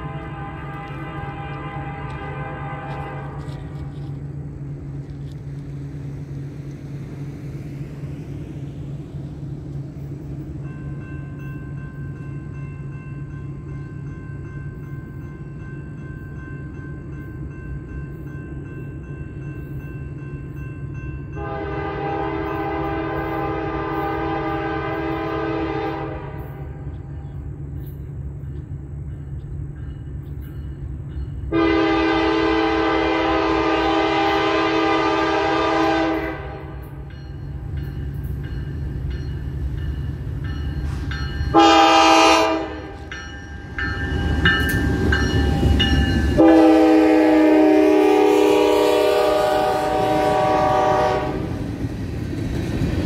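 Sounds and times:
locomotive horn blasts: 0.0s - 4.1s, 21.3s - 26.9s, 31.5s - 37.0s, 41.5s - 43.1s, 46.4s - 51.6s.

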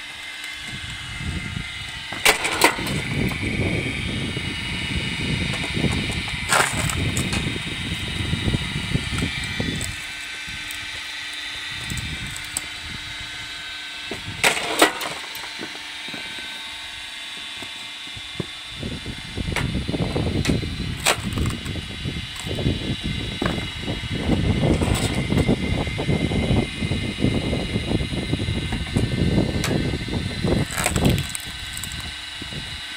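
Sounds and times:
log splitter rack grinding: 0.0s - 26.6s, 28.1s - 32.6s
motor humming: 0.0s - 32.9s
split wood clattering down: 2.2s - 3.0s, 6.5s - 7.4s, 14.4s - 15.8s, 30.7s - 32.1s
log cracking: 6.5s - 7.3s.

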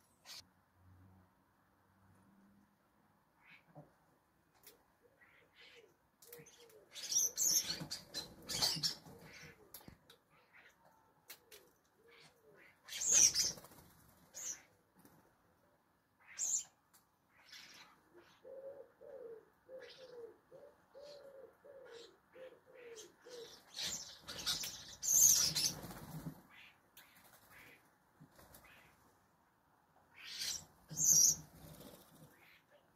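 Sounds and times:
bird wings flapping: 25.5s - 26.4s.

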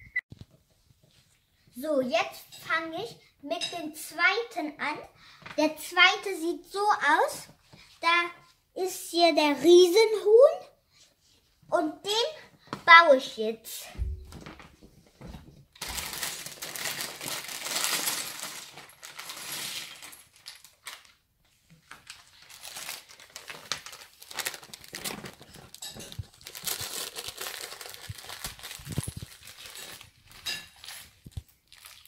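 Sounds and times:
plastic bag crinkling: 15.8s - 21.2s, 21.8s - 32.0s.

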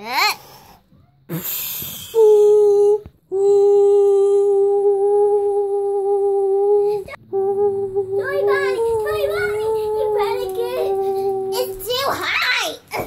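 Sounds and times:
child humming: 2.0s - 11.9s.

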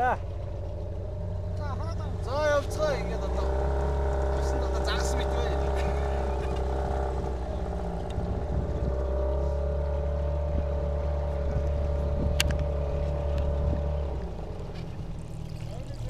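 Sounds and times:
outboard motor running: 0.0s - 16.0s
water rushing past hull: 14.2s - 16.0s.

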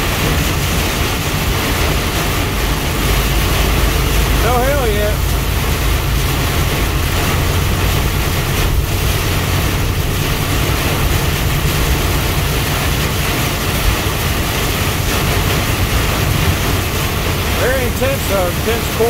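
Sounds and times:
engine and road noise hum: 0.0s - 19.0s
heavy rain on windshield: 0.0s - 19.0s.

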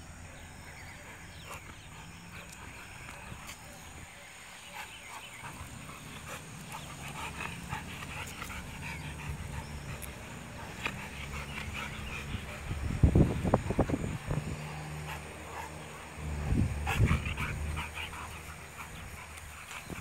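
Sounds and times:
dogs panting: 0.0s - 20.0s
dogs whimpering: 0.3s - 20.0s
dog low rumbling: 5.4s - 20.0s.

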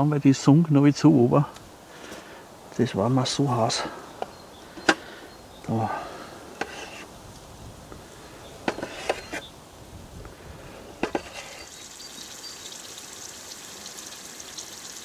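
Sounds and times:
potato slices sizzling in oil: 11.2s - 15.0s.

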